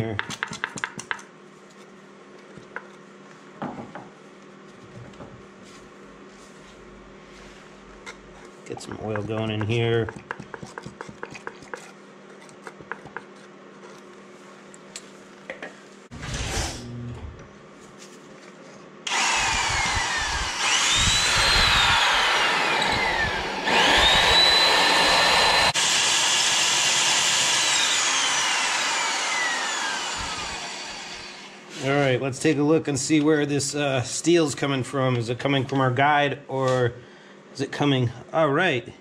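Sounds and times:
electric drill cutting steel: 19.1s - 31.7s.

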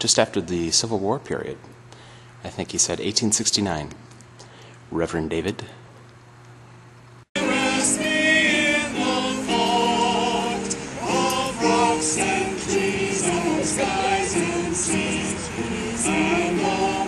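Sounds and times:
choir singing a hymn: 7.4s - 17.0s.

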